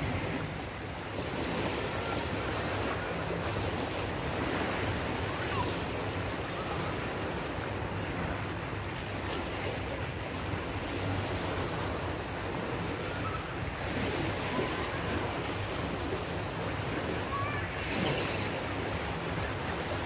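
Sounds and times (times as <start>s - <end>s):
small waves lapping on shore: 0.0s - 20.0s.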